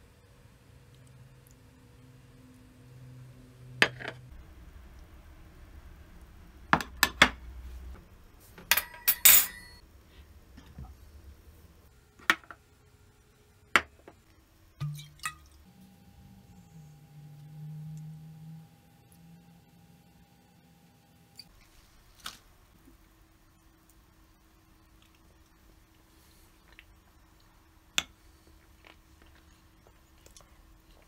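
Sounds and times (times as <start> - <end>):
glassware and crockery clinking: 8.7 - 9.8.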